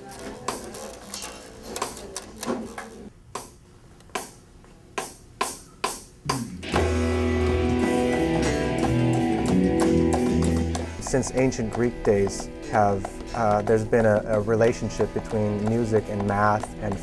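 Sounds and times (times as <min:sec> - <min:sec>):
electronic drum kit hits: 0:06.3 - 0:11.1
electric bass notes: 0:06.3 - 0:17.0
electric guitar chords: 0:06.4 - 0:14.0.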